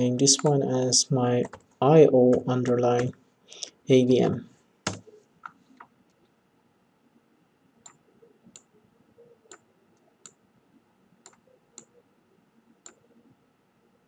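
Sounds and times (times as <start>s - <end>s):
keystrokes: 4.9s - 5.6s.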